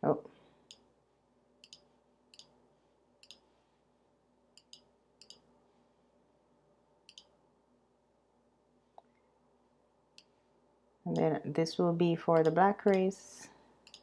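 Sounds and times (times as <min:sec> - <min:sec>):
computer mouse clicks: 0:01.6 - 0:02.6, 0:03.2 - 0:03.4, 0:04.6 - 0:05.4, 0:07.1 - 0:07.3, 0:12.4 - 0:13.1.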